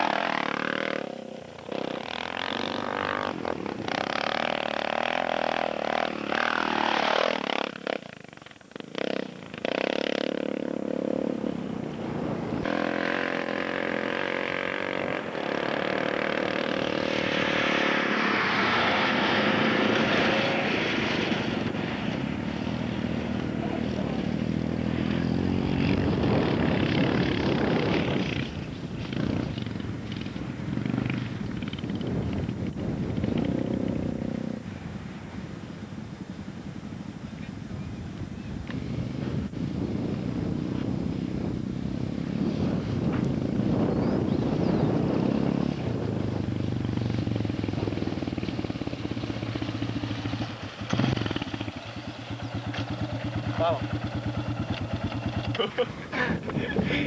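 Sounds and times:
dirt bike engine revving: 0.0 - 32.2, 46.7 - 56.3.

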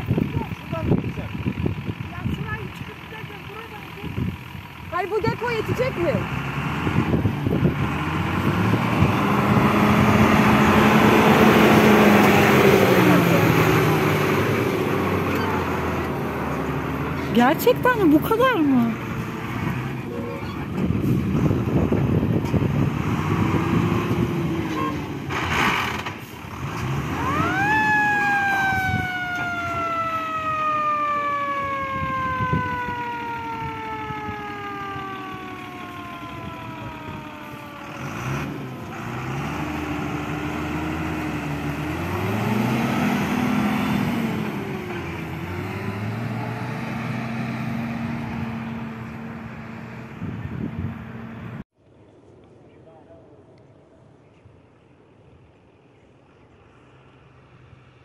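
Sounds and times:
truck engine revving: 0.0 - 51.7
siren wailing: 27.0 - 38.8.

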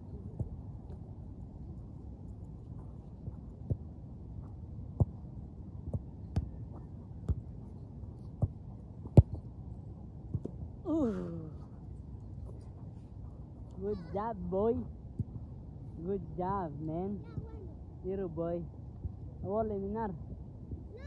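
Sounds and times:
low background noise: 0.0 - 21.0
football kicked thud: 8.4 - 9.4.

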